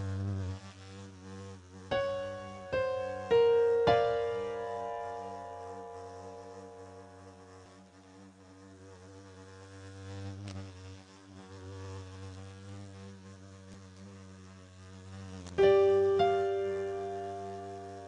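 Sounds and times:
fly buzzing: 0.0 - 18.0
piano note: 1.9 - 7.8, 15.6 - 18.0.

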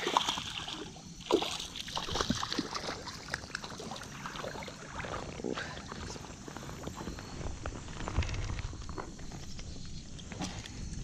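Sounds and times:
water splashing and sloshing: 0.0 - 7.2.

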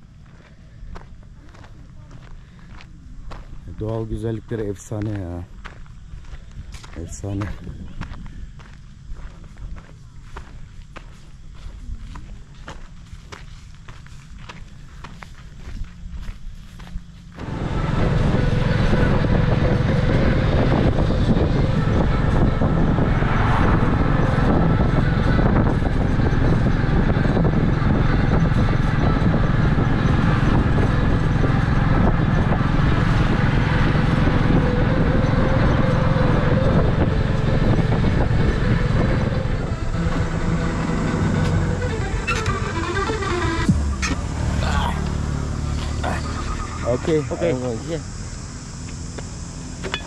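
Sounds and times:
engine running steadily: 0.0 - 50.0
road and wind noise: 0.0 - 50.0.

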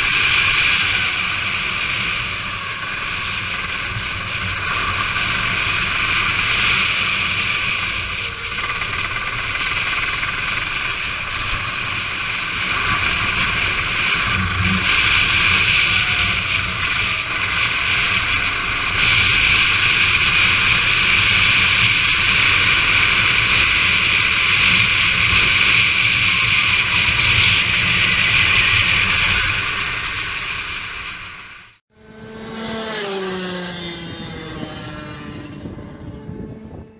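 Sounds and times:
wet track spray: 0.0 - 31.6
go-kart engine running: 0.0 - 36.9
wind noise: 32.6 - 36.9.

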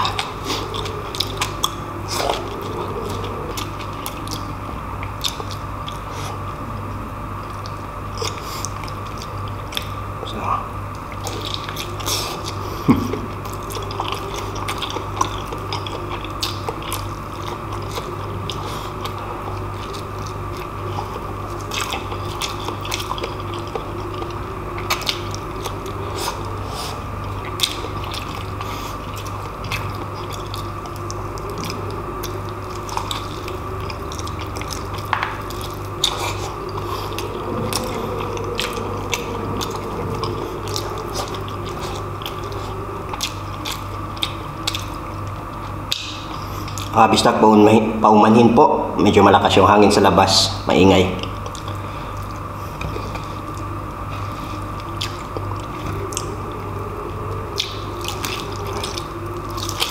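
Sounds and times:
close-miked chewing: 0.0 - 47.4, 49.1 - 59.9
strong wind: 36.5 - 42.2.

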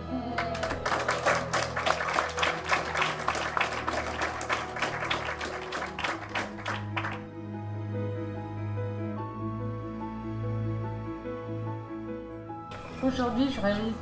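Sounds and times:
crowd applauding: 0.0 - 7.3
soft background music: 0.0 - 14.0.

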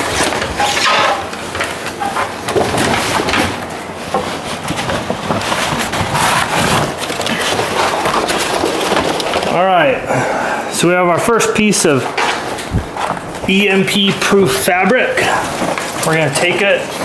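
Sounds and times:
metallic fabric crinkling: 0.0 - 9.6, 12.0 - 17.0.

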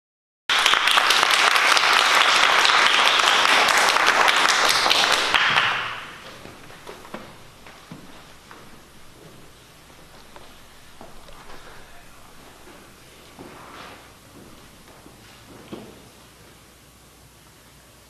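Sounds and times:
audience applauding: 0.5 - 13.2.

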